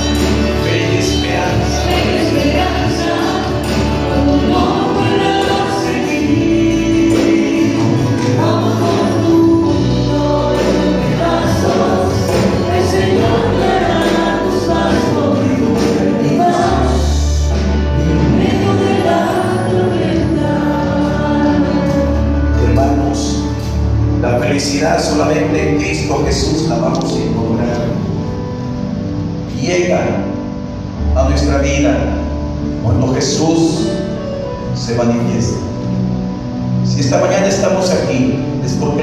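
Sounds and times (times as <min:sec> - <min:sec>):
group singing worship song: 0:00.0 - 0:24.0
steady bass line: 0:00.0 - 0:30.1
band accompaniment: 0:00.0 - 0:39.0.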